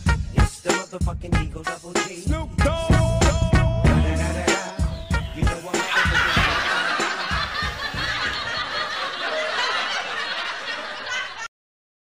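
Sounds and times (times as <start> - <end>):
hip-hop music beats: 0.0 - 8.6
group of people laughing: 5.5 - 11.5.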